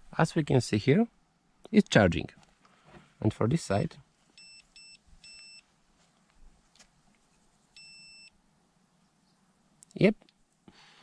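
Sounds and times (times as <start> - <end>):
multimeter beeping: 4.4 - 5.6, 7.8 - 8.4.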